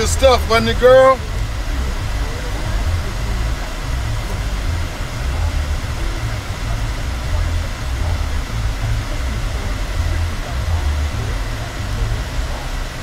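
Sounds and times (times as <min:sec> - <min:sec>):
car engine rumble: 0:00.0 - 0:13.0.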